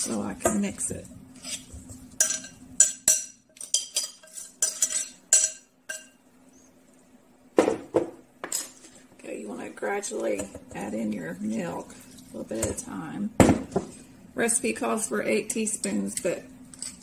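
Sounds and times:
metal spoon scraping bowls: 1.4 - 6.2.

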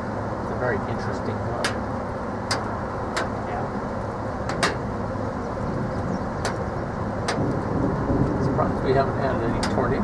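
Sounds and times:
wind: 0.0 - 10.0
distant thunder: 7.2 - 10.0.

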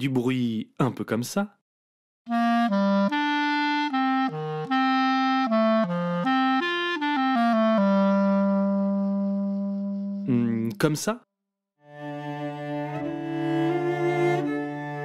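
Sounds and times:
solo wind instrument melody: 2.3 - 10.6, 11.9 - 15.0.

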